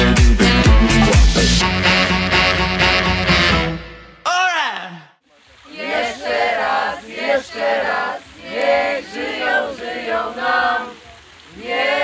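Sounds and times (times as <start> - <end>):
group of voices singing: 5.6 - 12.0.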